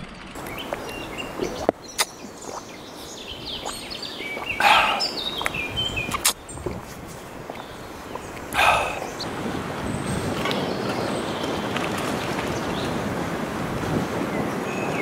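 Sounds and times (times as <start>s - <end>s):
whistled bird notes: 0.4s - 6.8s, 7.5s - 9.3s
songbirds singing: 0.4s - 13.2s, 13.8s - 15.0s.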